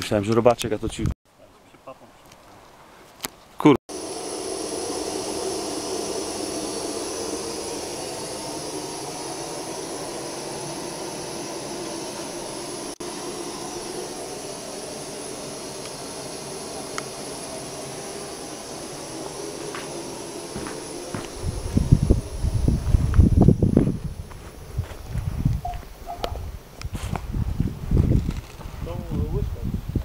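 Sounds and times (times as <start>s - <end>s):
gas stove burner roaring hiss: 3.9s - 27.5s.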